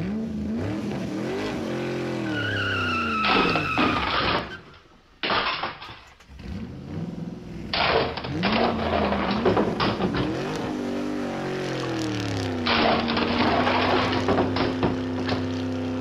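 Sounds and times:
race car engine revving: 0.0 - 4.5, 6.2 - 16.0
tyres squealing: 1.6 - 6.3.

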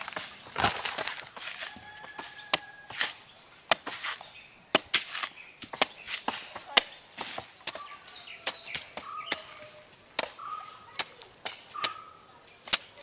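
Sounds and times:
machete chopping coconuts: 0.0 - 9.6, 10.2 - 12.0
short bird calls: 7.8 - 10.9, 11.7 - 12.4.

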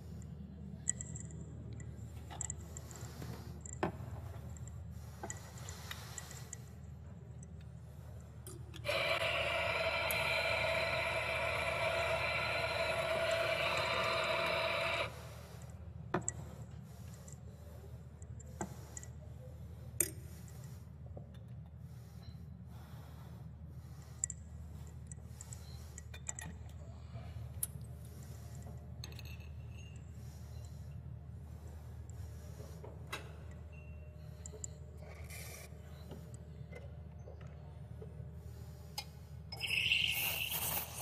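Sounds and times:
coffee grinder motor running: 8.9 - 15.1.

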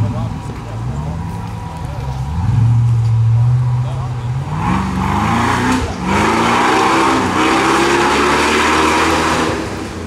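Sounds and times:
off-road vehicle engine revving: 2.0 - 10.0
loud exhaust roar: 2.2 - 10.0.

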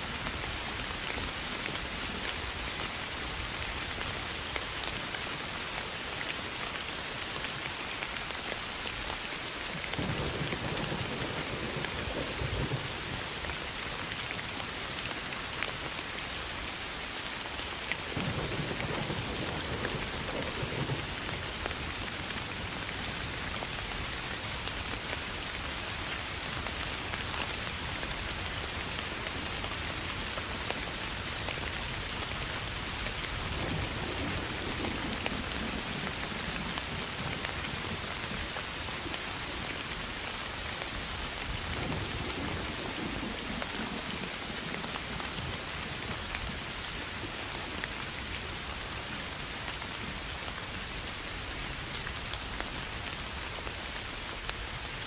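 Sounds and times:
soft rain: 0.0 - 55.0
rolling thunder rumbles: 7.6 - 13.5, 18.2 - 21.8.

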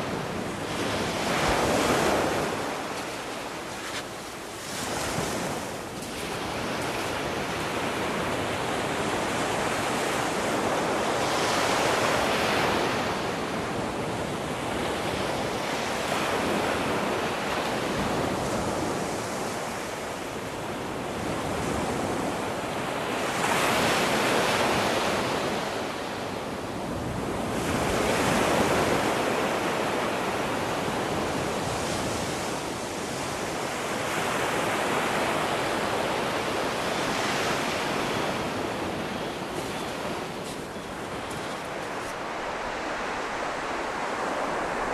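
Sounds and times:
surf breaking on beach: 33.9 - 44.9.

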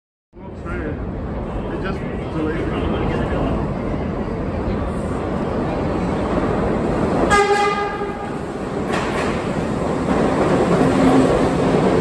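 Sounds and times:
subway train rumbling: 0.3 - 12.0
train horn blast: 7.3 - 8.3.

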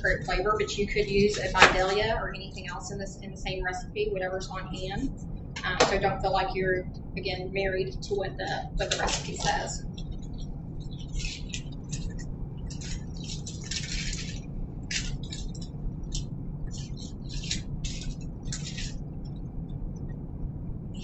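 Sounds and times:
onion skin crackling as peeled: 9.8 - 19.4.

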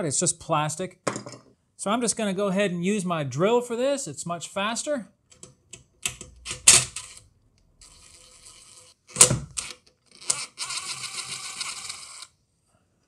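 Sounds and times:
drill motor whirring: 7.8 - 12.3.

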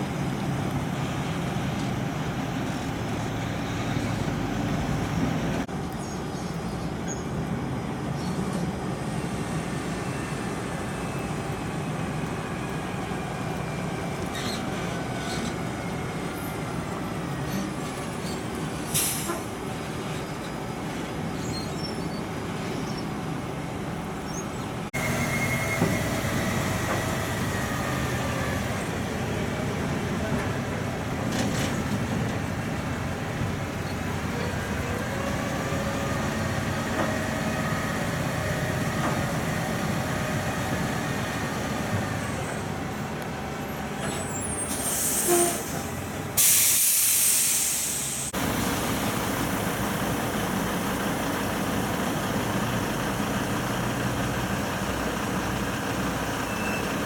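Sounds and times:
heavy trucks driving past: 0.0 - 57.0
brakes squealing: 8.2 - 57.0
brief hiss: 44.0 - 48.3.

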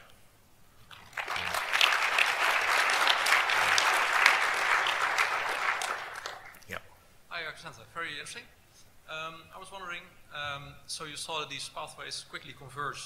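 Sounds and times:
audience applauding: 0.9 - 6.6.

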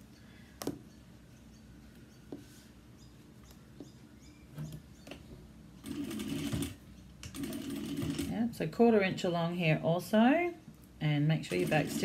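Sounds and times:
sewing machine stitching: 5.8 - 8.4, 11.5 - 12.0.

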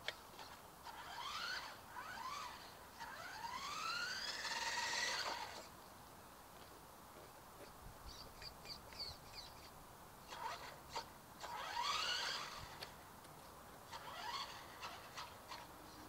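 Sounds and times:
electric motor whining: 0.3 - 5.7, 10.3 - 12.9, 13.9 - 15.7.

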